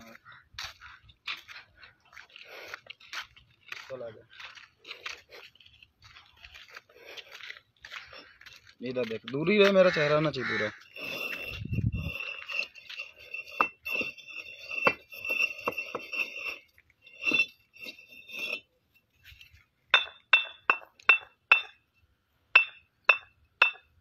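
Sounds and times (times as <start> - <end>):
bricks clinking together: 10.9 - 18.7, 19.9 - 21.8, 22.6 - 23.9.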